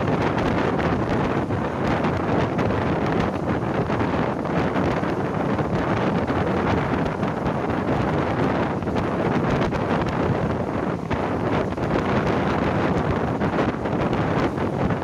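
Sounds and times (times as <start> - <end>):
train rumbling on rails: 0.0 - 15.0
wind buffeting microphone: 0.0 - 15.0.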